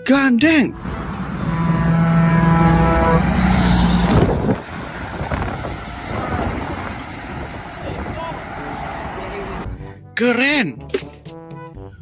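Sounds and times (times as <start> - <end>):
heavy trucks passing: 0.0 - 9.9
wind on microphone: 3.8 - 8.4.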